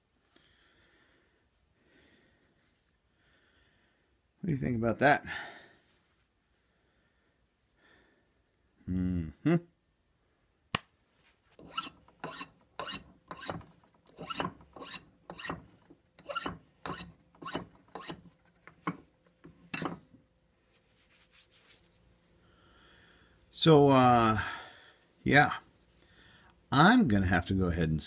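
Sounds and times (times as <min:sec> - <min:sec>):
file rasping on wood: 0:11.6 - 0:18.3.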